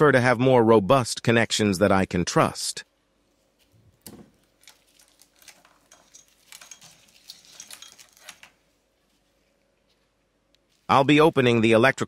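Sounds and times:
clicks and rustles of cables: 3.6 - 10.9.

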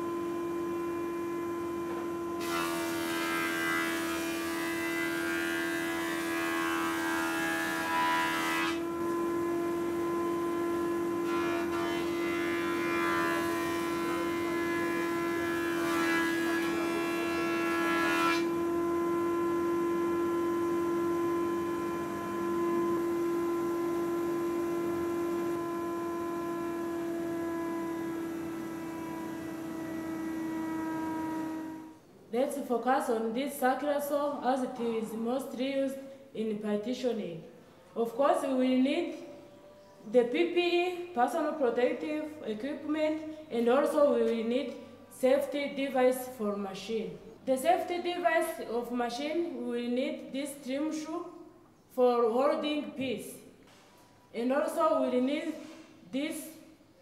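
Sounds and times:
thickness planer whining: 0.0 - 32.0.

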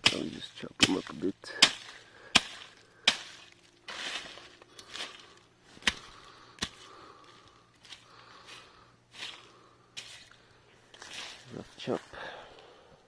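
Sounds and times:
chopping strikes on weeds: 0.0 - 5.1, 5.8 - 6.9
cut plants rustling: 0.0 - 12.7.

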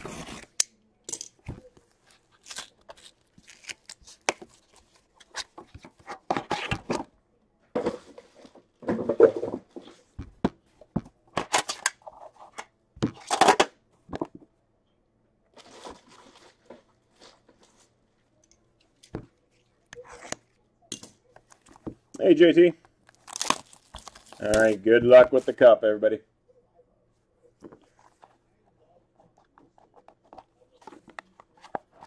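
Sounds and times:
plastic wrap tearing and crinkling: 1.8 - 5.5, 23.0 - 24.8
packaging rustling: 23.0 - 25.6.

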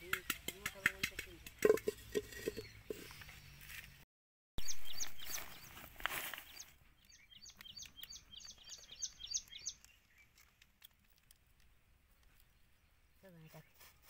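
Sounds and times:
bird chirping: 0.0 - 3.9, 4.6 - 10.8, 11.6 - 14.0.

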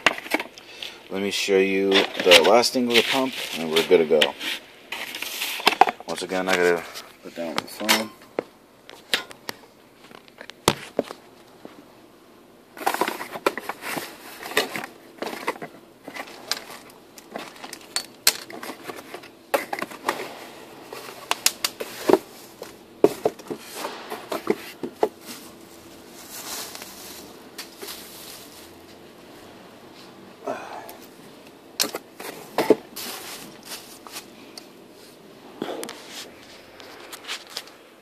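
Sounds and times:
rummaging in cardboard box: 12.8 - 28.9, 31.9 - 34.3.

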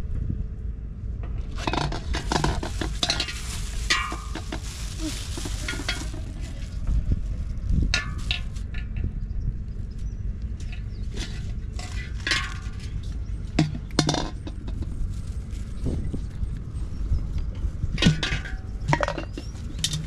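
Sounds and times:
plastic bag crinkling: 1.6 - 8.7, 11.1 - 16.4.

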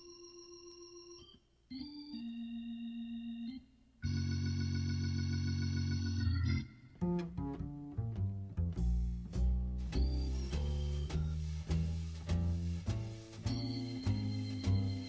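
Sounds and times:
held music chords: 5.6 - 15.0
short plucked low notes: 7.0 - 15.0.

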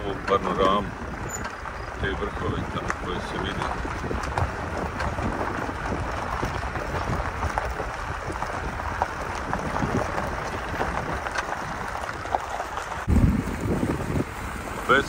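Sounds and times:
tyres rumbling on gravel: 0.0 - 15.0
small crackles and knocks: 2.7 - 13.1.

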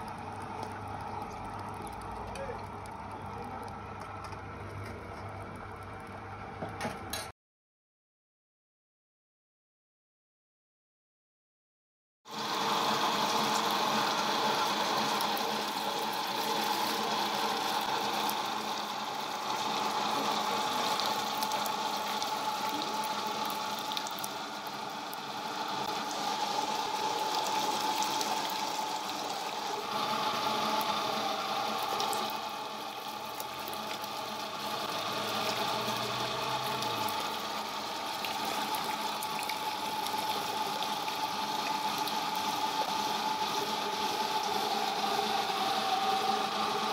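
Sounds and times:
machine motor humming: 12.3 - 46.9
watery pump-like pulp pressing: 12.3 - 46.9.

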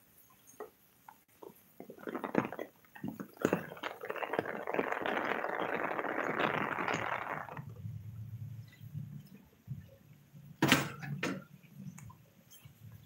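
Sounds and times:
rain splashing on concrete: 3.3 - 7.7.

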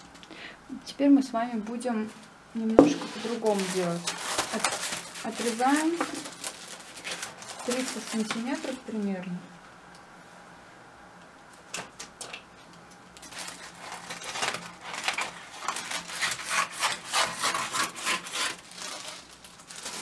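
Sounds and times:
crepe paper rubbing and rustling: 3.0 - 8.8, 13.2 - 20.0.

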